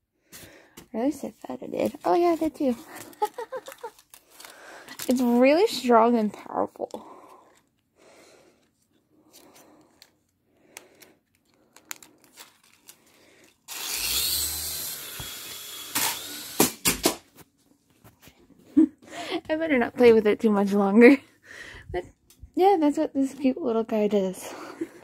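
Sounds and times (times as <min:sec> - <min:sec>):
toy propeller motor whirring: 0:13.4 - 0:16.8.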